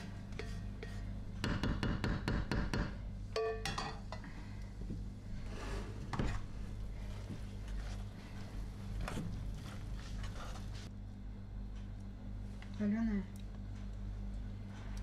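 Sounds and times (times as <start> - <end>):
spoon scraping mashed potato: 0.3 - 1.1, 6.3 - 10.9
wooden spatula knocking on pan: 1.4 - 3.0.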